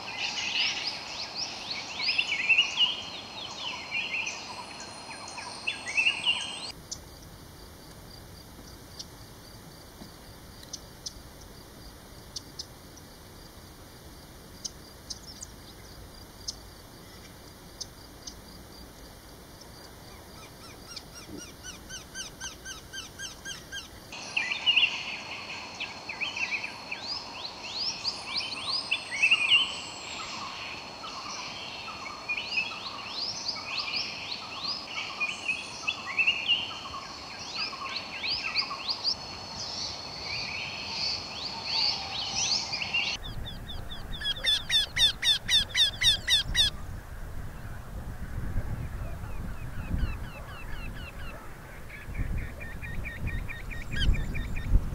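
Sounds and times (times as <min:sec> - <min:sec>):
birds singing: 0:00.0 - 0:06.8, 0:19.6 - 0:46.8, 0:48.8 - 0:54.9
faint ticks: 0:10.0 - 0:11.6.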